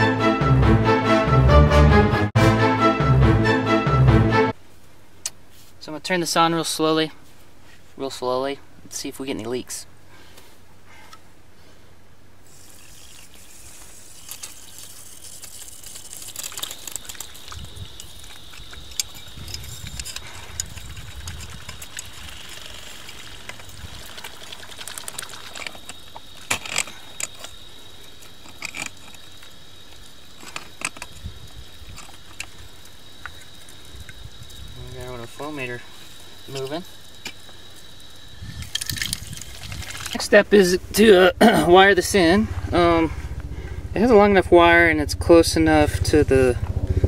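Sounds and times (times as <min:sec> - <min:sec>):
water hissing in pipe: 0:12.4 - 0:26.4.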